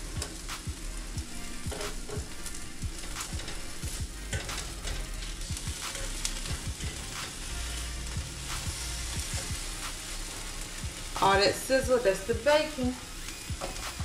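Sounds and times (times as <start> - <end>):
bacon sizzling in a frying pan: 0.0 - 14.0.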